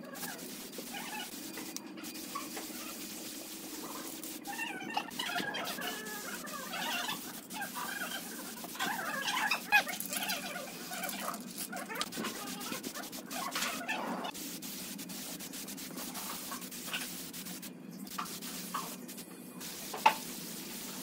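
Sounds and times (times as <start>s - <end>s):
cat-like animal cries: 0.0s - 1.3s, 4.4s - 14.3s
spray can hissing: 0.1s - 21.0s.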